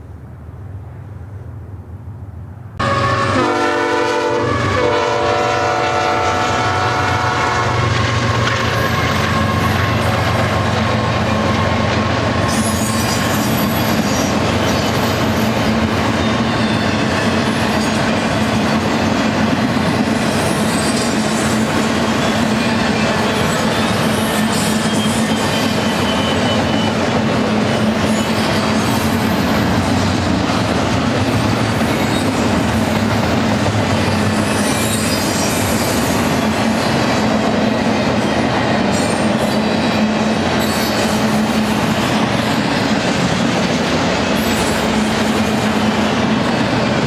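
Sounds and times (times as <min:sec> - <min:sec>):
train cars rumbling past: 0:00.0 - 0:47.0
locomotive air horn blasts: 0:02.8 - 0:08.0
high wheel squeal: 0:12.4 - 0:15.5, 0:22.2 - 0:27.1, 0:34.0 - 0:36.5, 0:40.6 - 0:42.8.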